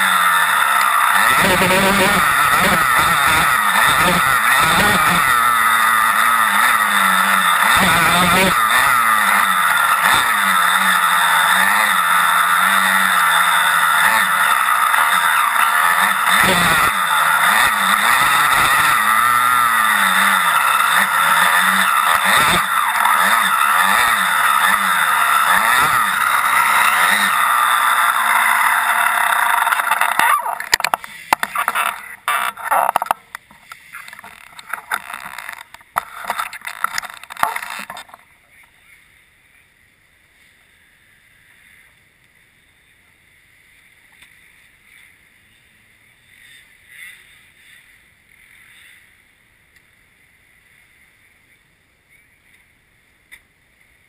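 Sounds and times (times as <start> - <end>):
racing engine revving: 0.0 - 30.9.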